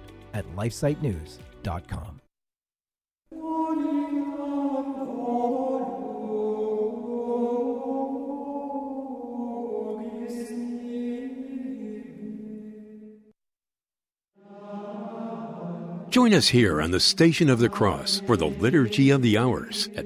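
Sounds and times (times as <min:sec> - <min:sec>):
sung religious chant: 0:03.3 - 0:13.0, 0:14.4 - 0:20.0.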